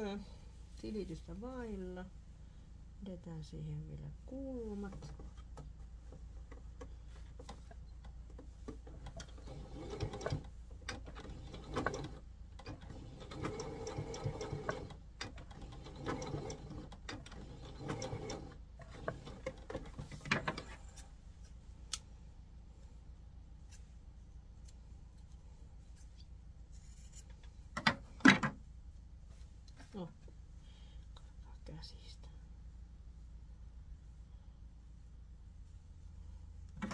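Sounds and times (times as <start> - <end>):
sewing machine stitching: 9.0 - 20.0.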